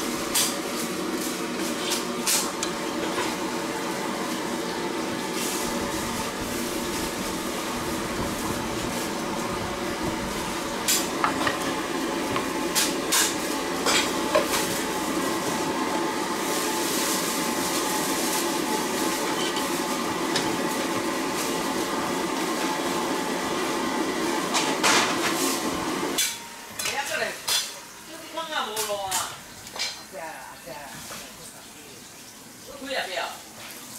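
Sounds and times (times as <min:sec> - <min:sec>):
steady kitchen hiss: 0:00.0 - 0:33.9.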